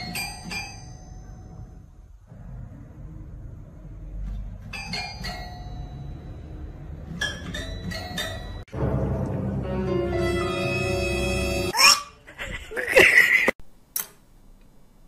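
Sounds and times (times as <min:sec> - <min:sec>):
background music: 0:08.7 - 0:11.8.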